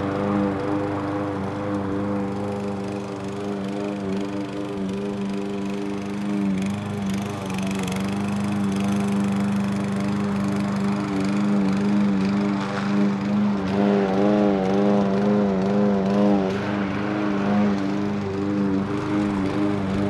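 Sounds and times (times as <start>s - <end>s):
small gasoline engine running: 0.0s - 20.0s.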